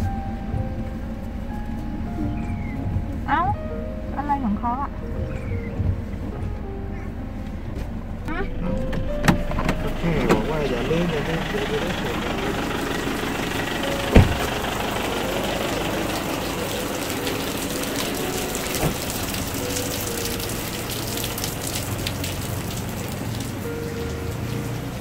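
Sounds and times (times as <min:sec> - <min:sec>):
rain on wet paving: 0:08.2 - 0:25.0
sharp thump: 0:14.1 - 0:14.5.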